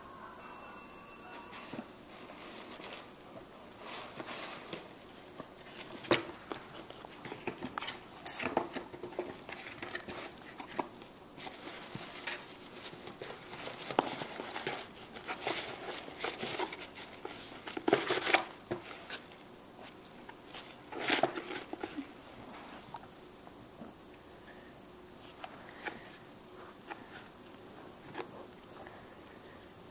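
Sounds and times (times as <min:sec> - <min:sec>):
cat rustling in cardboard box: 0:01.6 - 0:22.9.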